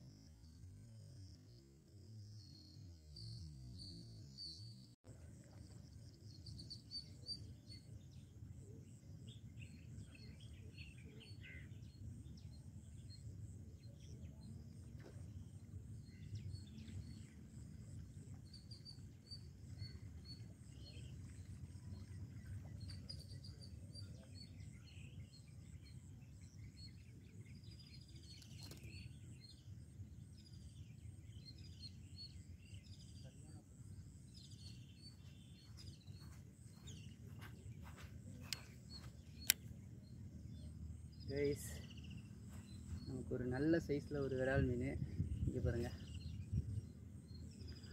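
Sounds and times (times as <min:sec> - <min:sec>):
bird chirps: 0:05.6 - 0:47.9
sharp click: 0:39.3 - 0:39.7.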